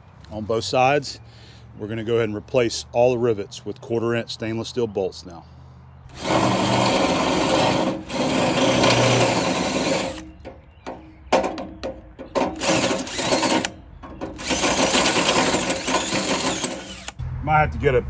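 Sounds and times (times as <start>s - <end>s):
cordless drill drilling metal: 6.1s - 10.3s, 12.5s - 17.2s.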